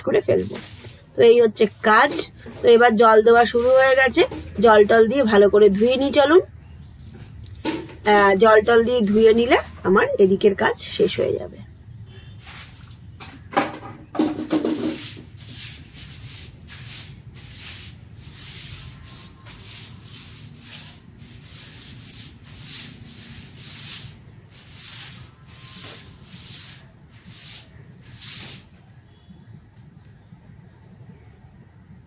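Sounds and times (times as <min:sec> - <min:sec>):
broom scrubbing wet concrete: 0:00.2 - 0:06.3, 0:12.4 - 0:13.0, 0:14.4 - 0:28.7.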